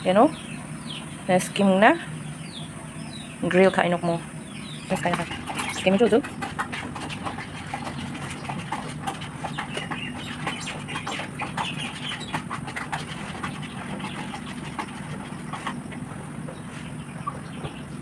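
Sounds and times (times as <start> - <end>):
steady low hum: 0.0 - 18.0
faint bird calls: 2.0 - 18.0
wet squelches of chicken: 5.0 - 16.2.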